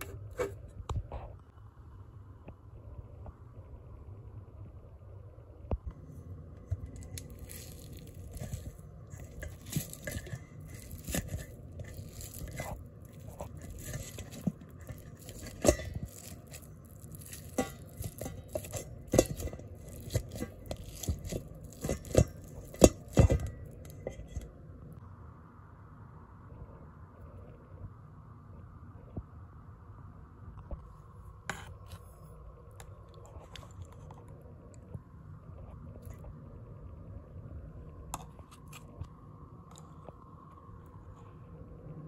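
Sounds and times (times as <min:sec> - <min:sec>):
metal fork scraping a bowl: 0:00.0 - 0:00.6, 0:07.0 - 0:24.4.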